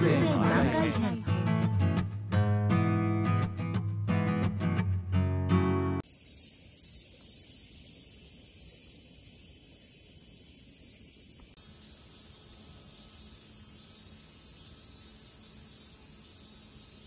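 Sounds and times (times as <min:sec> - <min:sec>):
high-pitched insect chorus: 0:06.0 - 0:17.0.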